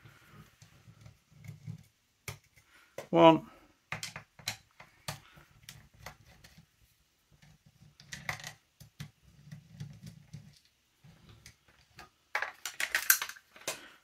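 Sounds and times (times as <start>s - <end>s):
small clicks and knocks: 3.9s - 6.7s, 7.3s - 14.0s.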